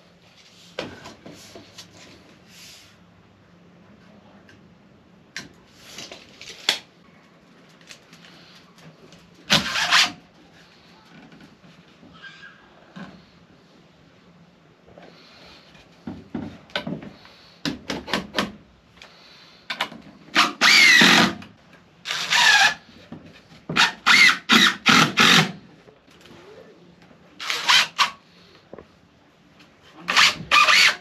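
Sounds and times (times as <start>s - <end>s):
impact driver driving screws into wood: 9.5s - 10.2s, 20.3s - 21.5s, 22.1s - 22.8s, 23.7s - 25.6s, 30.1s - 31.0s.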